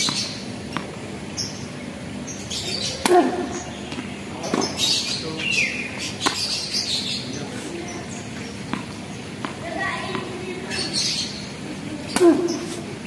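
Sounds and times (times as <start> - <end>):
birds chirping: 0.0 - 13.0
tennis ball struck by racket: 3.0 - 4.8, 6.2 - 6.5, 8.7 - 10.3.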